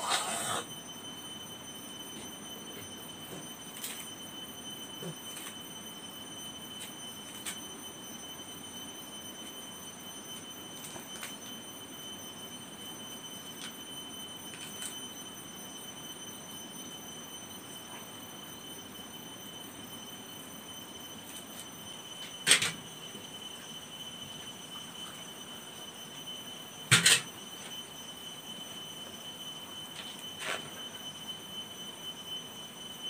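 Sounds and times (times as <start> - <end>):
faint steady high tone: 0.0 - 33.0.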